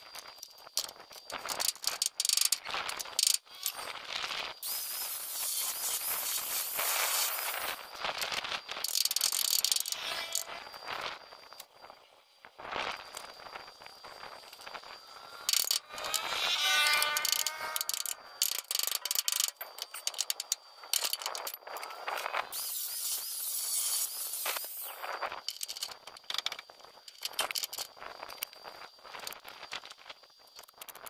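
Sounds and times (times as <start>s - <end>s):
faint steady high whine: 0.0s - 31.0s
wavering pitched squeal: 9.9s - 10.7s, 14.4s - 18.7s.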